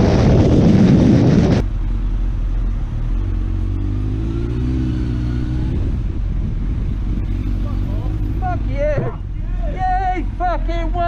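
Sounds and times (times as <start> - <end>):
wind rushing over microphone: 0.0 - 1.7, 8.1 - 9.9
motorcycle at highway speed: 0.0 - 11.0
motorcycle engine revving: 1.7 - 9.5.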